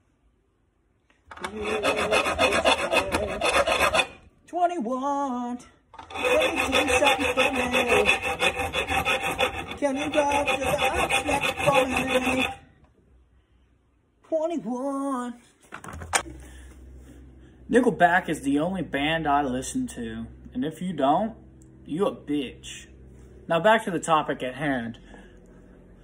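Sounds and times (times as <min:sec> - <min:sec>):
file rasping on metal: 0:01.3 - 0:04.3, 0:06.0 - 0:12.7.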